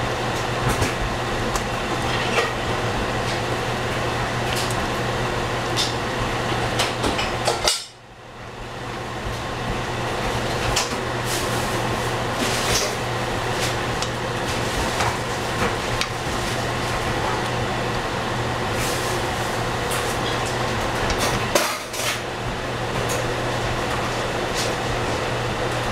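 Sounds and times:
steady hum: 0.0s - 25.9s.

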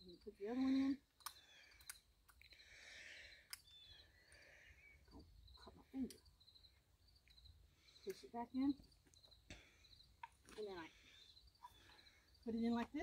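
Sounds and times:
insects chirping in trills: 0.0s - 13.0s
faint clicks: 1.2s - 2.6s, 3.4s - 4.5s.

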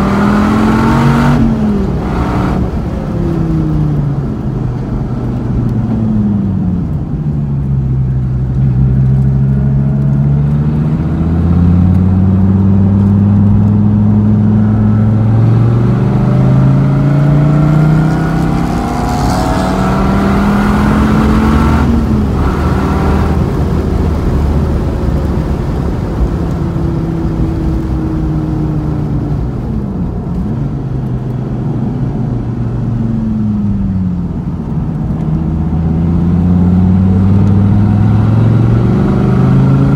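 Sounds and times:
car engine revving at speed: 0.0s - 39.9s.

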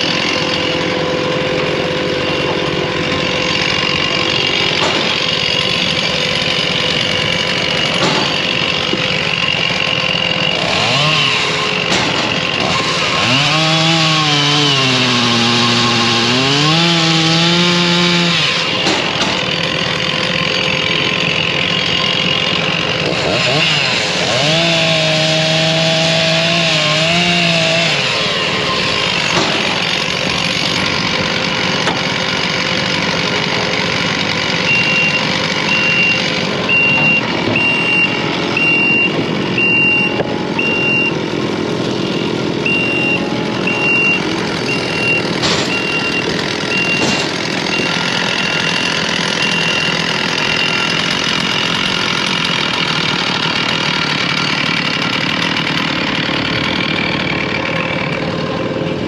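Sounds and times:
chainsaw cutting logs: 0.0s - 59.0s
backup alarm beeping: 34.6s - 41.2s, 42.6s - 48.8s.

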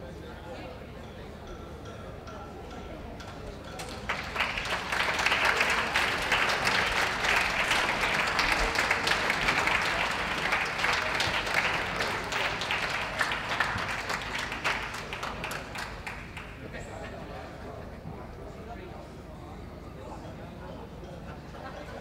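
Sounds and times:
audience applauding: 3.8s - 16.7s.

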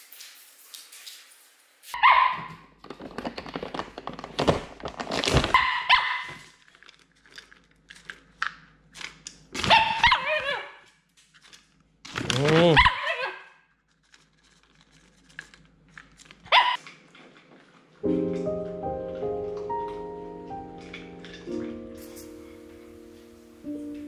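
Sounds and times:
dog bark-whine calls: 5.6s - 6.4s, 12.6s - 13.6s, 16.5s - 16.8s.

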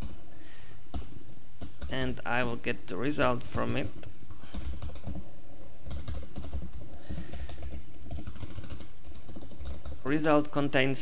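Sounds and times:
low background hum: 0.0s - 11.0s
keyboard typing: 0.9s - 2.2s, 3.6s - 10.5s.

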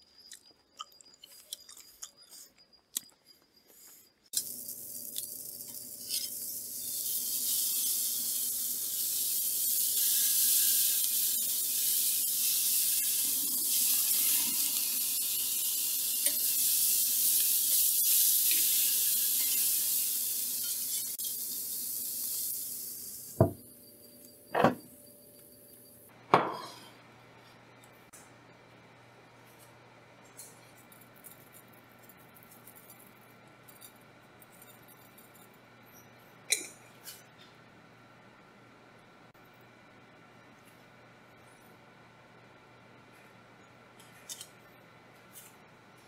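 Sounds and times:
meat sizzling on a grill: 4.4s - 23.6s.

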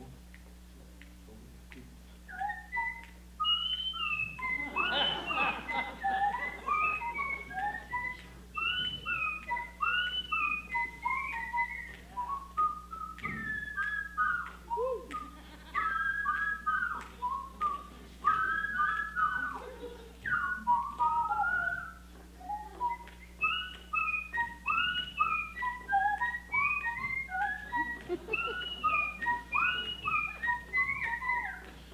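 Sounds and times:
people whistling: 2.3s - 31.9s.

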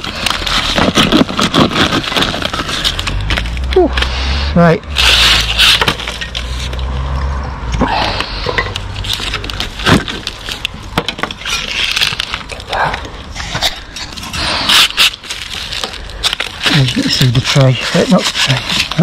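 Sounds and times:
brick scraping on mortar: 8.0s - 19.0s.

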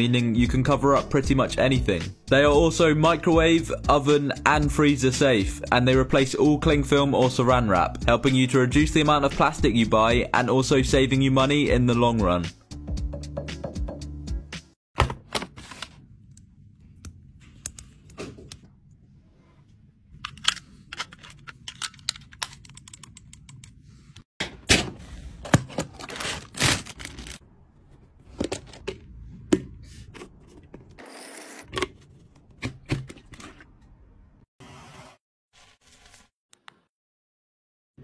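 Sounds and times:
plastic items clicking and scraping: 20.2s - 23.8s.

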